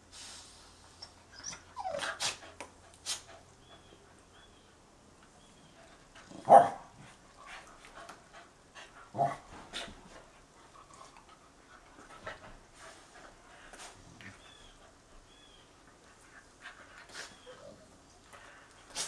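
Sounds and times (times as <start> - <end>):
faint small noises: 0.0 - 19.0
dog barking: 6.5 - 6.9.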